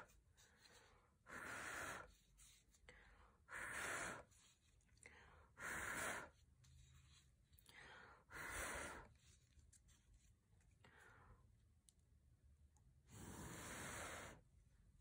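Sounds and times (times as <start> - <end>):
puffs of breath blown by mouth: 0.0 - 2.6, 13.1 - 14.5.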